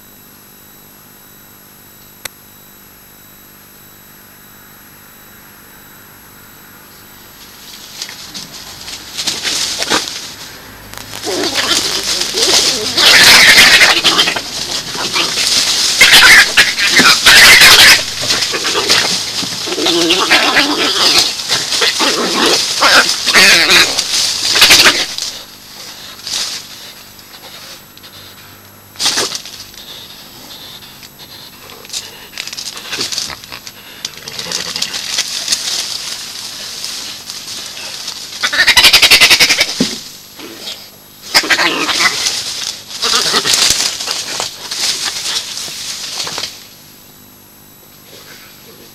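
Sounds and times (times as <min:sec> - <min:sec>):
badgers squealing and screaming: 0:11.2 - 0:25.4, 0:38.4 - 0:39.8, 0:41.3 - 0:42.4, 0:43.0 - 0:44.4.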